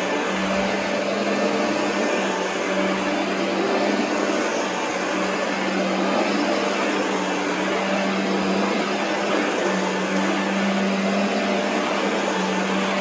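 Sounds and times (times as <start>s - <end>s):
upright vacuum cleaner running: 0.0s - 13.0s.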